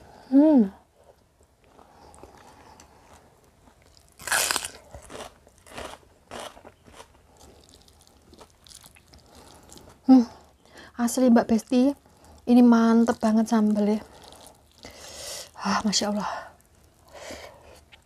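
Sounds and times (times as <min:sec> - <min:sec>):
crunchy bite and chewing: 0:01.9 - 0:10.0, 0:14.0 - 0:15.0.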